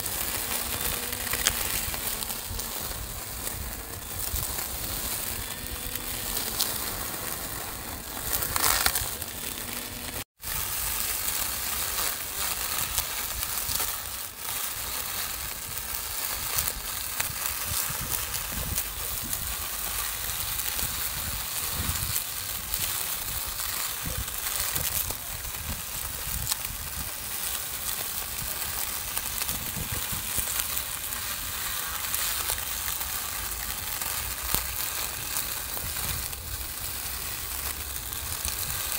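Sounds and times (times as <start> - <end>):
electric grass trimmer running: 0.0 - 15.8.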